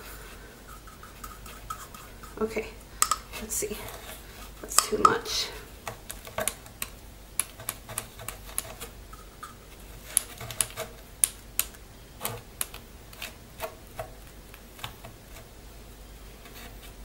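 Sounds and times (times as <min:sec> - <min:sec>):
paintbrush tapping: 0:00.7 - 0:03.4.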